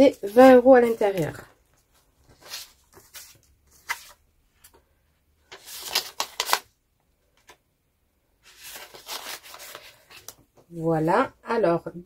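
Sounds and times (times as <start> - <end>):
plastic and paper rustling: 0.0 - 4.8, 5.4 - 6.7, 8.4 - 10.6.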